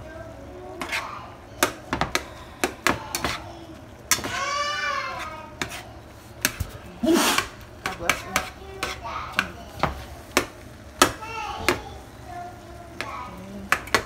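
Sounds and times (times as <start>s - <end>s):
metal spatula scraping skillet: 0.8s - 1.2s, 5.0s - 9.2s.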